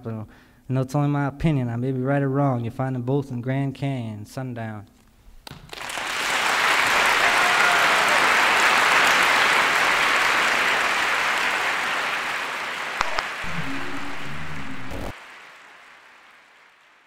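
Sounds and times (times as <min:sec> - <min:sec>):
audience applauding: 0:05.7 - 0:17.0.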